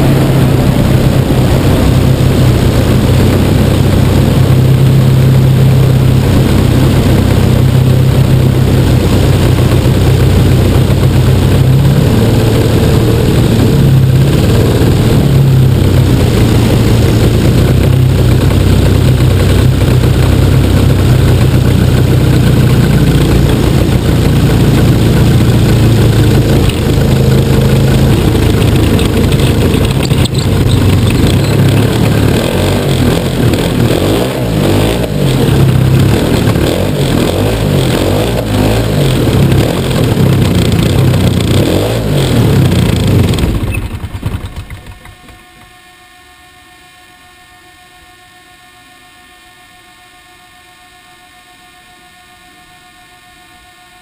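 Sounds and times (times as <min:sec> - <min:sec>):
wind over microphone: 0:00.0 - 0:19.4
model airplane engine running: 0:00.0 - 0:54.0.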